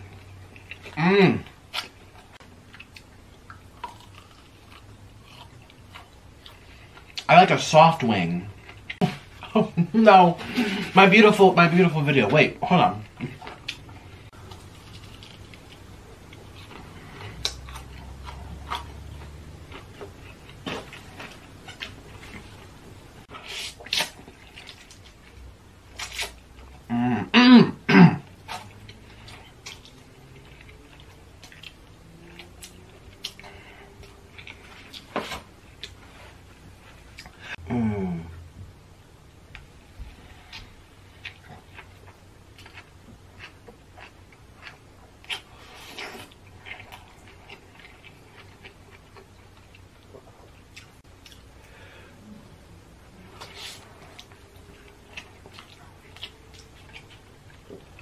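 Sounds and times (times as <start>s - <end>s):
wet chewing: 0.0s - 7.3s, 13.1s - 22.8s, 28.2s - 36.0s, 40.2s - 51.5s, 53.2s - 58.0s
voiced throat noises: 37.4s - 38.4s
wet chewing with lip smacks: 53.3s - 58.0s.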